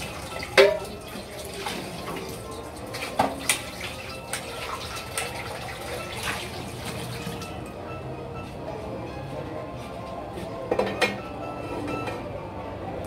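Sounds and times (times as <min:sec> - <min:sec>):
tap water running: 0:00.0 - 0:07.6.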